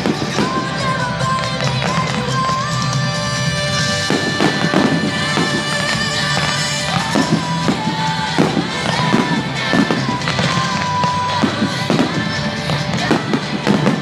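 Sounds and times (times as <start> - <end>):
music with long held notes: 0.0 - 14.0.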